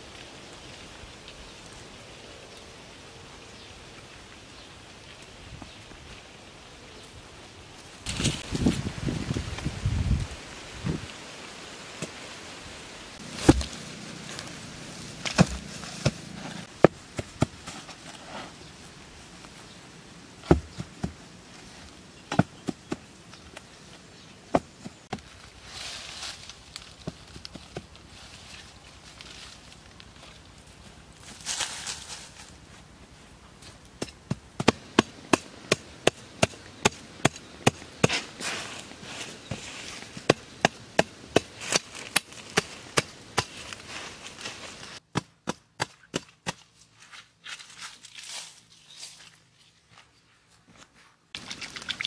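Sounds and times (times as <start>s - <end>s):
hand tool chopping into turf: 13.2s - 13.9s, 15.2s - 17.6s
hands patting grass sod: 13.2s - 19.8s, 20.4s - 30.4s.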